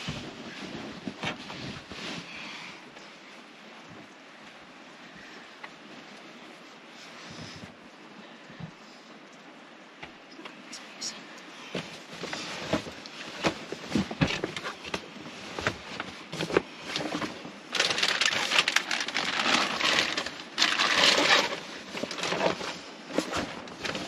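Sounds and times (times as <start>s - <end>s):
fabric shuffling: 0.0s - 4.6s, 11.8s - 24.0s
plastic bag crinkling: 15.6s - 24.0s.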